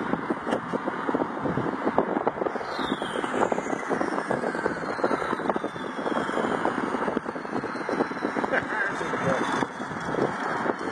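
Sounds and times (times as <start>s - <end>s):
high whistle sliding downward: 2.5s - 9.7s.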